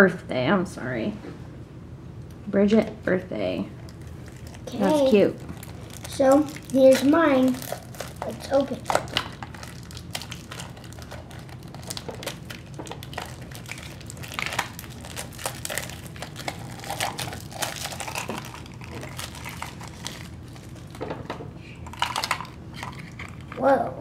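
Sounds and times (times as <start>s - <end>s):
plastic wrapper crinkling: 3.8s - 21.2s, 21.9s - 23.6s.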